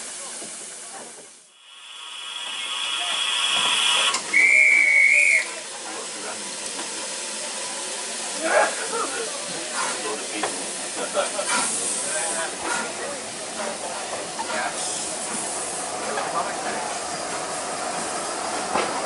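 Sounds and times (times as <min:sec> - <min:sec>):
locomotive hissing steam: 0:00.0 - 0:19.0
loud wavering whistle blast: 0:02.0 - 0:05.5.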